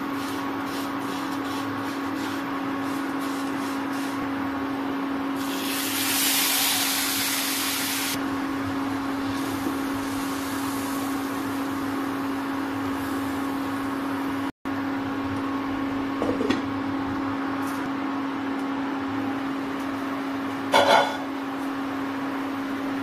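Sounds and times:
induction cooktop fan hum: 0:00.0 - 0:23.0.

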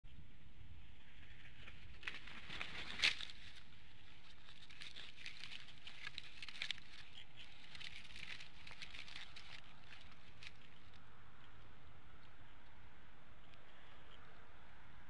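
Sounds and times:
steady low background noise: 0:00.1 - 0:15.0
dry sticks crackling and snapping: 0:01.6 - 0:12.8.

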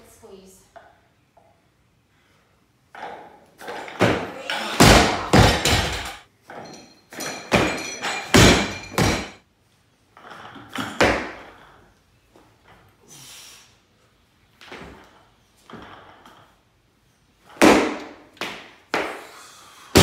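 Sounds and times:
barbell plates thudding: 0:03.0 - 0:09.4
bar and plates rattling metallically: 0:05.2 - 0:09.4.

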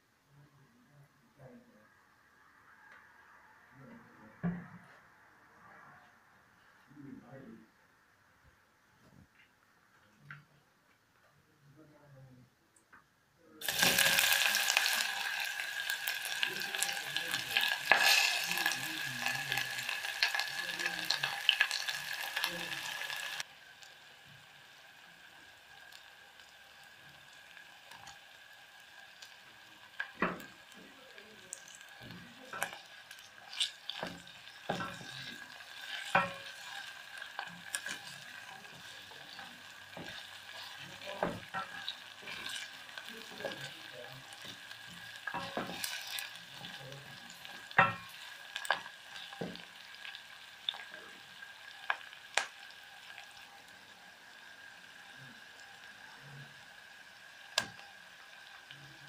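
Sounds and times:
onions sizzling in oil: 0:13.6 - 0:59.0
wooden spoon tapping and scraping pot: 0:45.3 - 0:46.3.

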